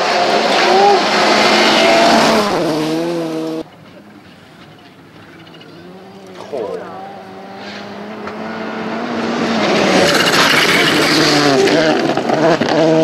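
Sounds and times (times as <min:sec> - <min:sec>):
rally car engine passing: 0:00.0 - 0:13.0.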